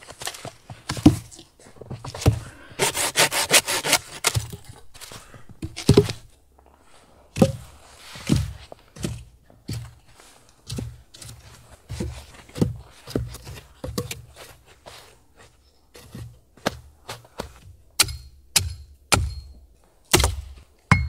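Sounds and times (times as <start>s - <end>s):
tool striking wood: 18.0s - 21.0s.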